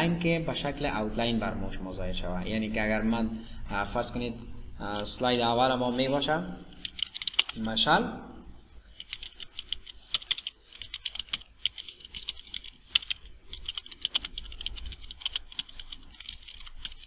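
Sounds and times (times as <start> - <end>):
keyboard typing clicks: 6.8 - 7.6, 9.0 - 17.0.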